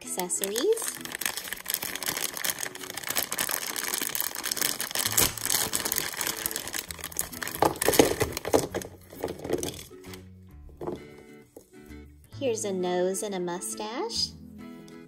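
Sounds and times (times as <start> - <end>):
plastic bag crinkling: 0.0 - 10.2
plastic toy pieces: 0.0 - 10.2.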